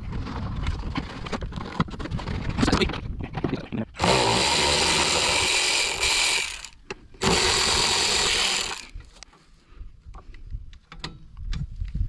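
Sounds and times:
cordless ratchet motor running: 4.0s - 9.0s.

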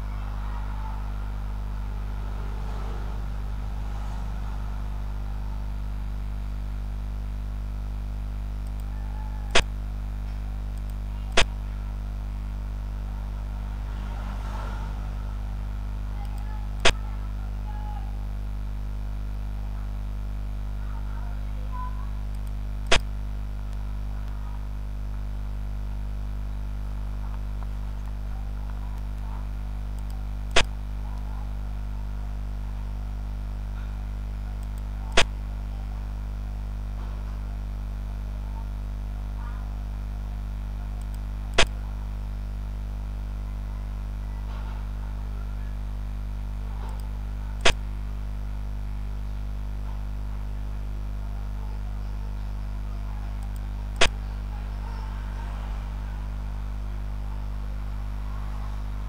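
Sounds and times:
electrical hum: 0.0s - 59.0s
sharp computer clicks: 10.3s - 11.5s, 29.9s - 30.7s, 53.4s - 54.2s.

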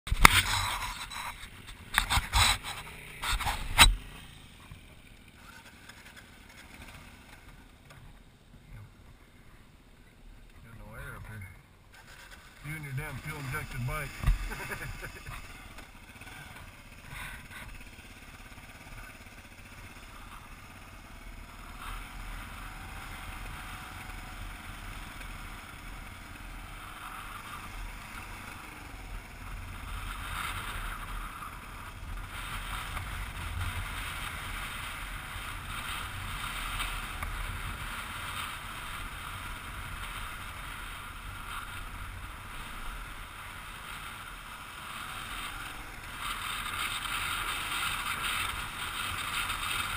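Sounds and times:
wind: 0.0s - 49.9s
motorcycle engine running: 0.1s - 49.9s
tyres rolling on gravel: 11.9s - 49.9s.

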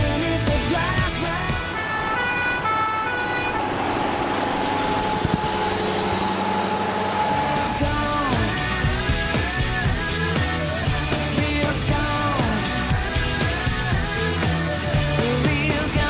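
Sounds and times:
road noise: 0.0s - 15.9s
truck engine passing: 0.0s - 15.9s
steady high tone: 1.2s - 10.4s
horn notes stepping in pitch: 1.6s - 8.9s.

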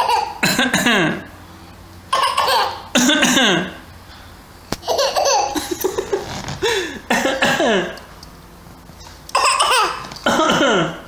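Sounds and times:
toddler laughing: 0.0s - 0.4s, 2.1s - 3.6s, 4.8s - 6.9s, 9.3s - 10.9s
toddler coughing: 0.0s - 1.3s, 2.1s - 3.8s, 7.1s - 8.0s, 9.3s - 11.0s.

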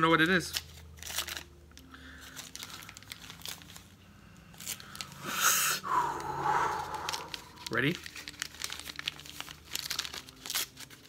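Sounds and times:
paper wrapping rustling: 0.2s - 5.3s, 6.0s - 11.0s
breath blown into whistle: 5.2s - 7.6s.

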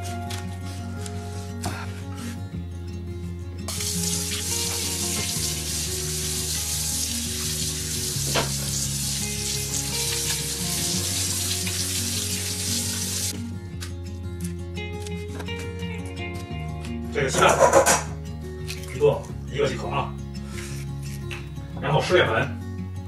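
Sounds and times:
background music with low notes: 0.0s - 23.0s
tap water running: 3.7s - 13.4s.

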